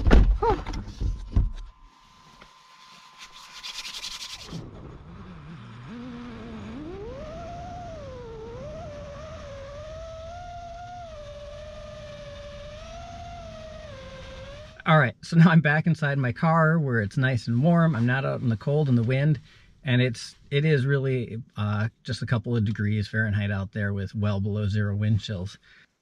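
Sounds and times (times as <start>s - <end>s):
quadcopter motors whining: 4.6s - 14.8s.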